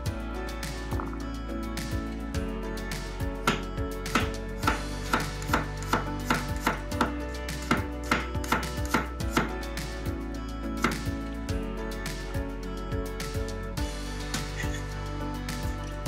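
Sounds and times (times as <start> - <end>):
knife chopping on wooden board: 3.5 - 9.5.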